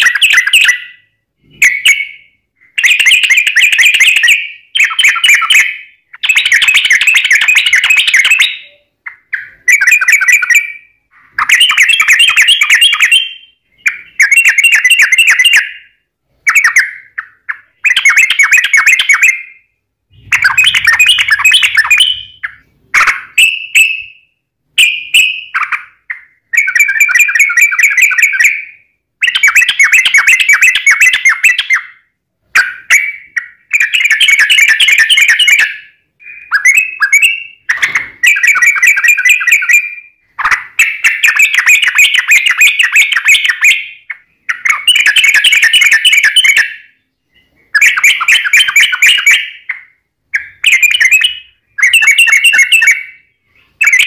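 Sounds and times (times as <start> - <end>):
bird singing chattering phrases: 0.0 - 24.1, 32.6 - 54.0.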